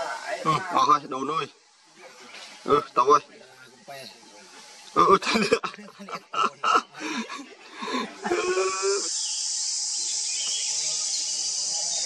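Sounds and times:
high-pitched insect drone: 7.0 - 12.0
monkey bleating call: 8.2 - 9.9.

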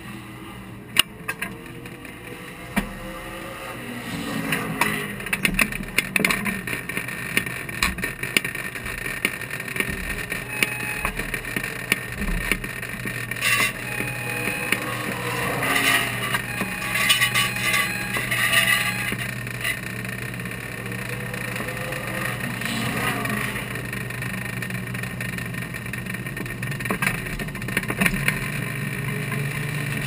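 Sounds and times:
race car engine running: 0.0 - 30.0.

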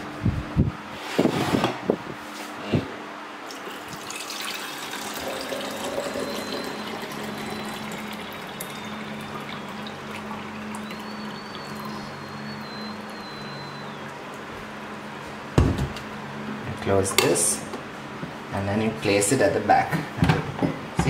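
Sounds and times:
water pouring into plastic tank: 3.5 - 12.0.

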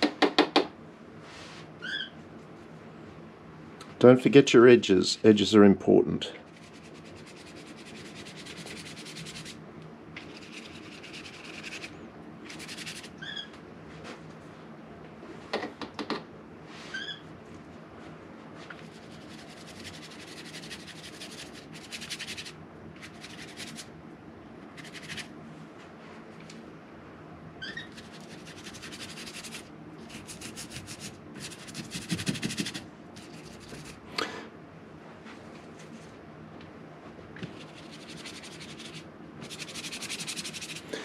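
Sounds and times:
paintbrush scraping on paper: 6.5 - 9.6, 10.2 - 11.9, 12.5 - 13.2, 18.8 - 23.9, 27.9 - 34.0, 37.5 - 41.0.

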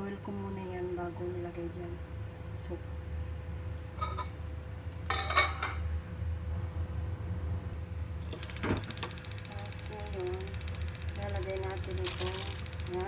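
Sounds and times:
steady low hum: 0.0 - 13.0
metal cookware clinking: 4.0 - 4.4, 5.1 - 5.9.

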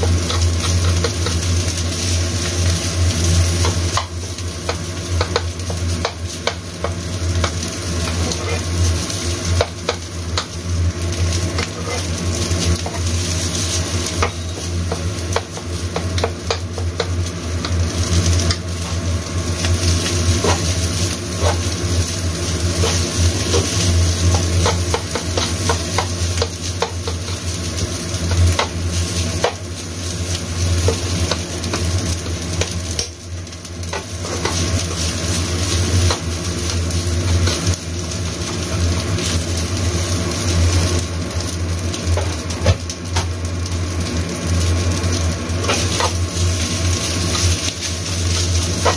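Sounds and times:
rice sizzling in a wok: 0.0 - 48.9
spatula scraping pan: 7.4 - 8.8, 11.4 - 19.0, 19.6 - 27.6, 33.9 - 36.3, 45.6 - 48.9.

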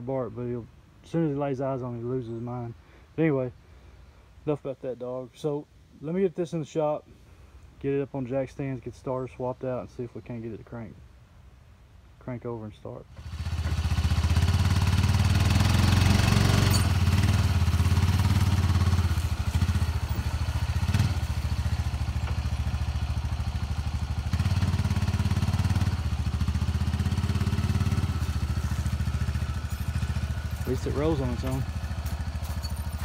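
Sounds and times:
vehicle engine running: 13.2 - 33.0.

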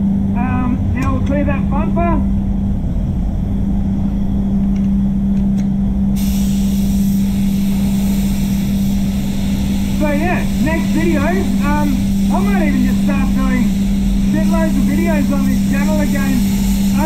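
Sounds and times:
spray booth hum: 3.9 - 17.0
spray gun hissing: 6.2 - 17.0.

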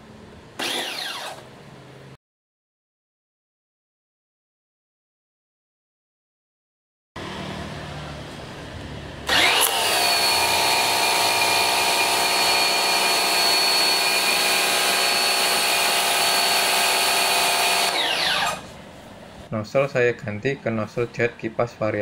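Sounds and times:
pressure washer motor whine: 0.6 - 1.4, 9.2 - 18.8.

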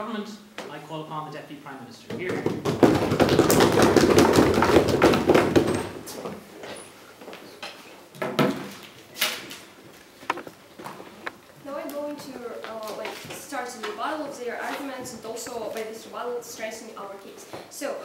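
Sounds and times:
knocks and shuffling: 2.0 - 16.0
audience applauding: 2.6 - 5.8.

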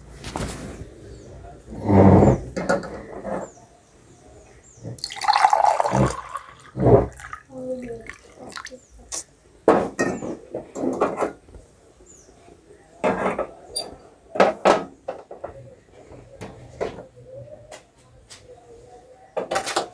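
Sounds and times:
faint voices: 0.0 - 19.9
water splashing: 5.0 - 8.8.

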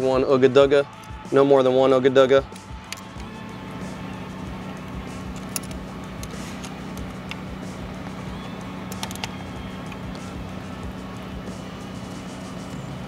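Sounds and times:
light clicks of bolts: 0.9 - 1.2, 2.5 - 3.3, 4.8 - 8.2, 8.8 - 10.4
machine engine humming: 2.4 - 13.0.

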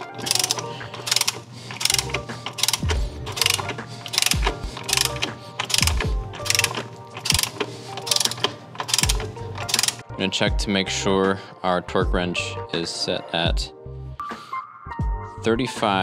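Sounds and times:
hand ratchet clicking: 0.0 - 10.0.

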